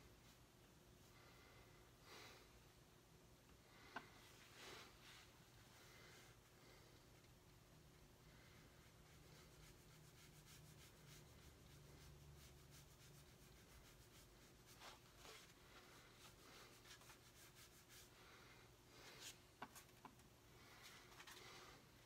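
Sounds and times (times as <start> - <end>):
brush rubbing on paper: 8.6 - 18.4.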